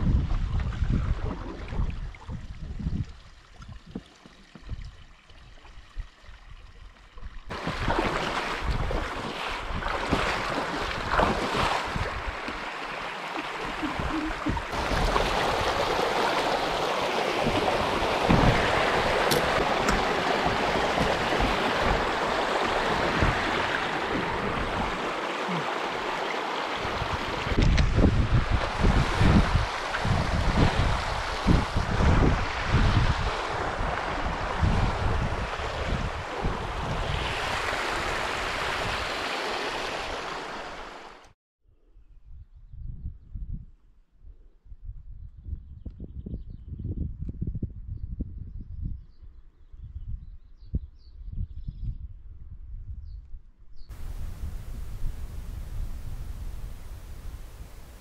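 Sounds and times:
wind buffeting microphone: 0.0s - 5.1s, 13.6s - 16.8s, 17.4s - 25.1s, 26.8s - 39.1s, 42.0s - 43.9s, 44.6s - 58.0s
rushing water and wind: 0.0s - 41.4s, 53.9s - 58.0s.

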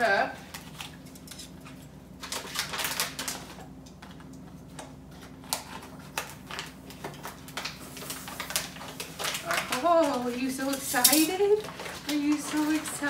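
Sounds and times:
plastic pouch crinkling: 2.2s - 3.8s, 5.2s - 13.0s.

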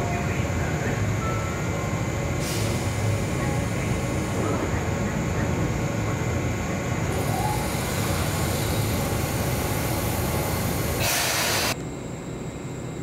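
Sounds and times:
electric train rumbling by: 0.0s - 11.8s
short burst of hiss: 11.0s - 11.7s.

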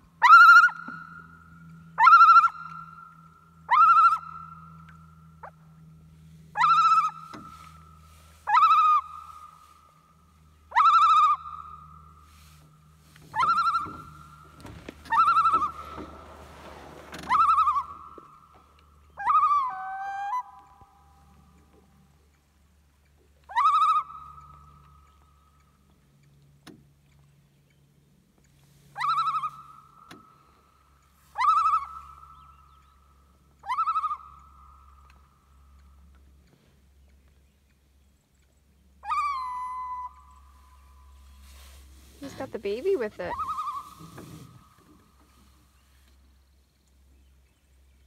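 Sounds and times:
loon calling: 0.2s - 5.9s, 6.5s - 22.0s, 23.4s - 25.3s, 28.8s - 36.0s, 39.0s - 46.0s.

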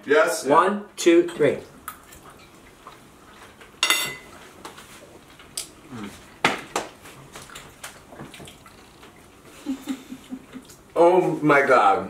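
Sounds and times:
cutlery clinking on plates: 3.8s - 4.3s.

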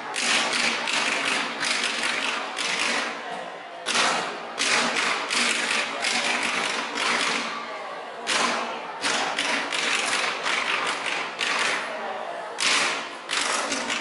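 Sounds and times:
drumsticks hitting plastic containers: 3.9s - 7.5s, 12.6s - 14.0s.

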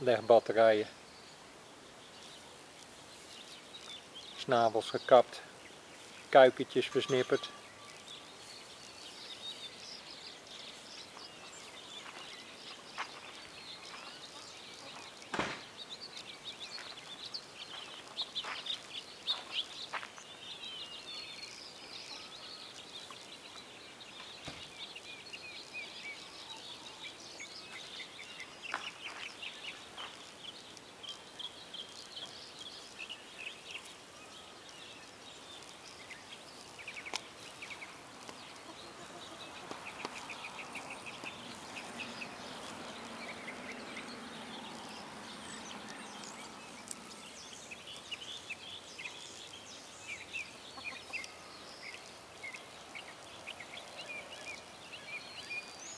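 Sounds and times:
outdoor background noise: 0.0s - 55.9s
sharp knock: 15.3s - 15.7s
hens clucking softly: 50.8s - 51.3s.

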